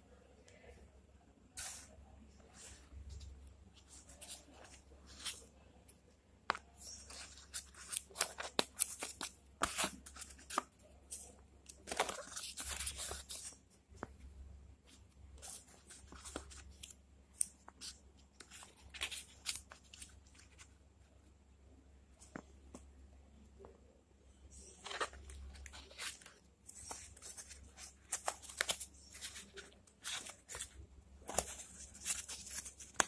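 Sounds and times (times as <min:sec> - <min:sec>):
paper rustling and crinkling: 0:01.6 - 0:05.5, 0:06.8 - 0:14.3, 0:24.6 - 0:33.0.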